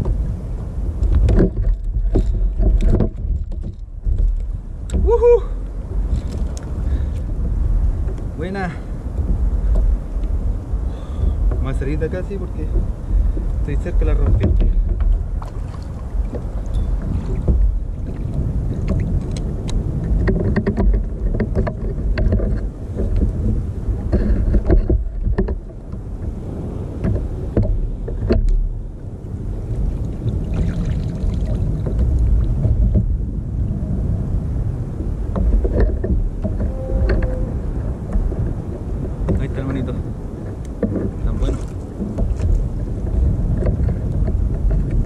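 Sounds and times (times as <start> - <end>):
water lapping against kayak: 0.0 - 45.0
wind on microphone: 0.0 - 45.0
knocks and clicks of gear: 1.0 - 5.1, 12.6 - 17.8, 18.8 - 26.4, 27.0 - 28.8, 35.3 - 37.5, 38.1 - 45.0.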